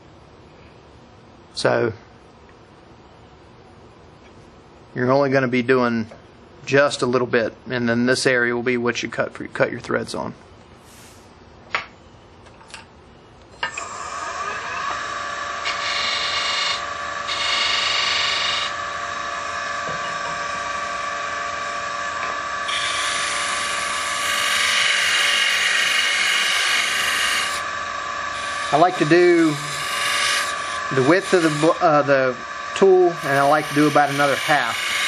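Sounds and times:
tool cutting wood hiss: 13.6 - 18.8, 22.1 - 35.0
wood lathe whining: 13.6 - 35.0.

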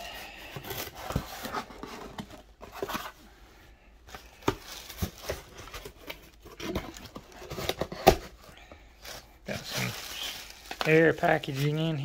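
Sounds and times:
plastic packing crinkling: 4.2 - 8.2, 9.0 - 12.0.

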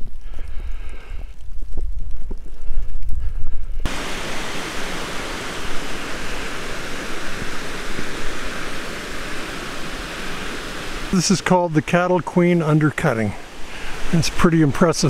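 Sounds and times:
rush of falling water: 3.9 - 15.0.

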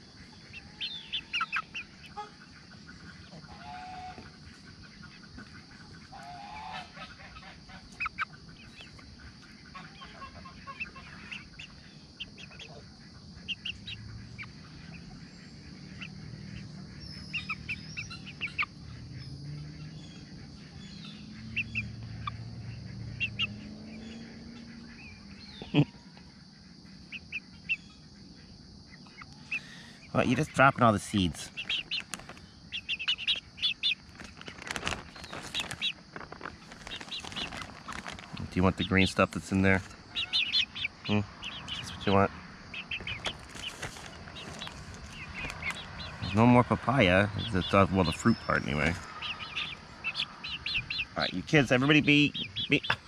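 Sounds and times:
chicks chirping: 0.0 - 53.0
low calls of chickens: 3.1 - 4.4, 5.2 - 8.0, 20.8 - 26.4, 33.7 - 53.0
chickens pecking taps: 30.4 - 40.9, 41.5 - 53.0.

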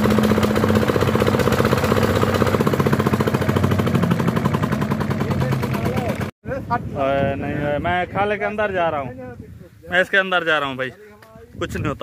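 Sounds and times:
diesel engine running: 0.0 - 6.3.

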